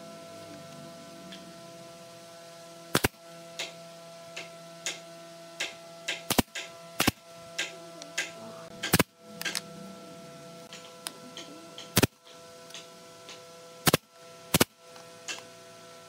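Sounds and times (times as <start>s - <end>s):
pneumatic nail gun firing: 2.9s - 3.8s, 5.6s - 9.6s, 11.8s - 15.5s.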